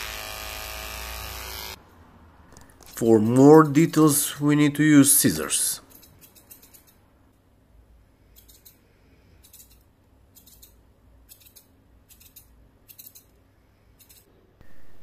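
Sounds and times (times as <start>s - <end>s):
scissors snipping fur: 9.4s - 13.3s.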